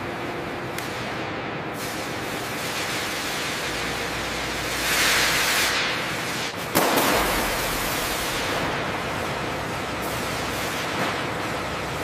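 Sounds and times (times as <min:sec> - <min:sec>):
sudden sharp crack: 0:06.7 - 0:07.9.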